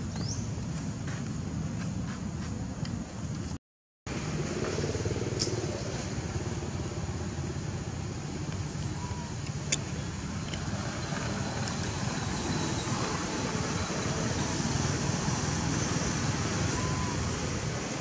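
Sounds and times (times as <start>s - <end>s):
low rumble with even hiss: 4.1s - 18.0s.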